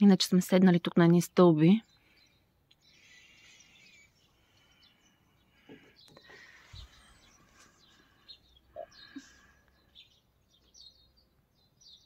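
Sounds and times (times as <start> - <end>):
faint bird chirps: 1.7 - 12.0.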